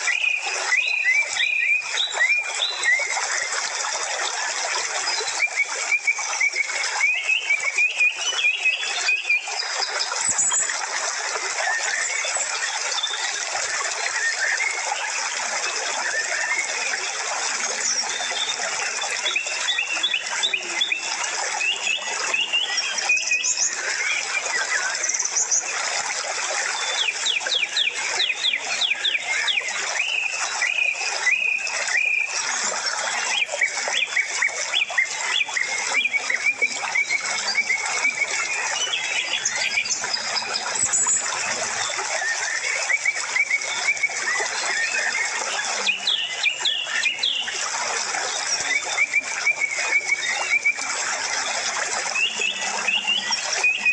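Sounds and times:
small birds chirping chorus: 0:33.4 - 0:41.5, 0:44.9 - 0:47.6, 0:52.2 - 0:53.9.

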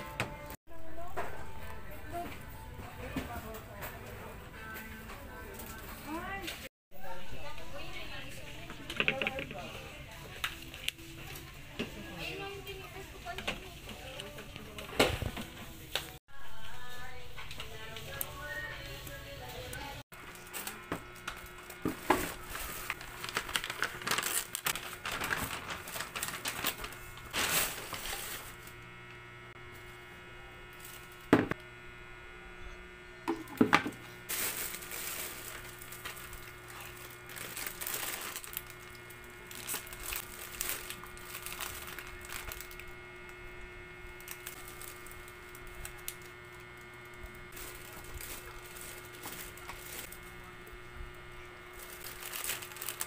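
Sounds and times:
plastic bag crinkling: 0:20.2 - 0:28.8, 0:34.2 - 0:43.3, 0:44.0 - 0:53.0
steady low hum: 0:24.6 - 0:53.0
plastic pitcher clicks and knocks: 0:33.3 - 0:34.0.

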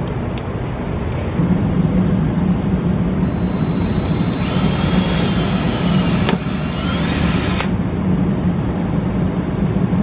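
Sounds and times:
steady low hum: 0:00.0 - 0:10.0
cordless drill whining: 0:03.2 - 0:07.7
drill click: 0:03.3 - 0:07.8.

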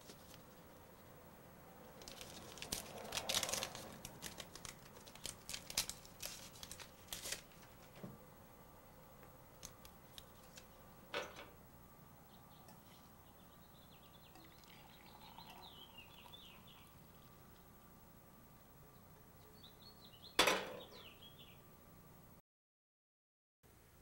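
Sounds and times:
paper wrapper tearing and crinkling: 0:02.0 - 0:07.9.

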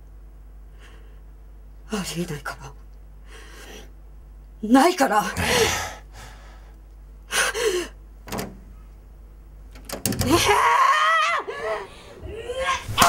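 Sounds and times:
person gasping: 0:05.3 - 0:08.0
long high strained cry: 0:10.3 - 0:13.0.

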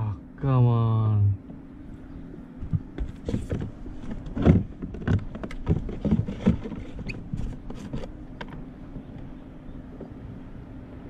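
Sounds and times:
steady low hum: 0:00.0 - 0:11.0
knocks clicks and rattles of gear: 0:02.6 - 0:09.3.

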